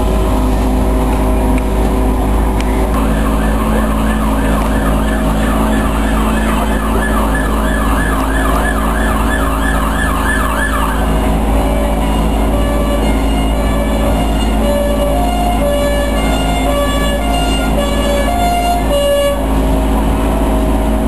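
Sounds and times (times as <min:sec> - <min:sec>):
steady low hum: 0:00.0 - 0:21.0
emergency vehicle siren yelping: 0:03.0 - 0:19.6.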